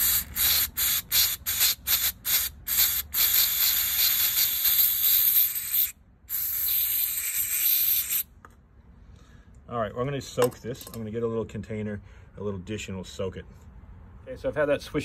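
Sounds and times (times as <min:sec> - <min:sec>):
aerosol spray hissing: 0:00.0 - 0:08.3.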